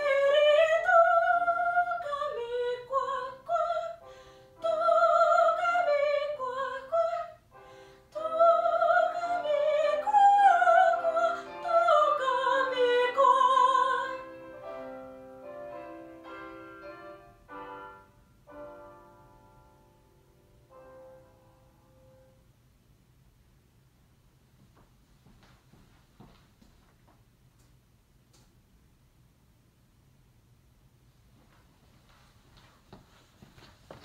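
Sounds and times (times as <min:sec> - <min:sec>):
woman singing operatically: 0:00.0 - 0:04.0, 0:04.6 - 0:07.4, 0:08.1 - 0:14.4
piano accompaniment: 0:00.0 - 0:22.5.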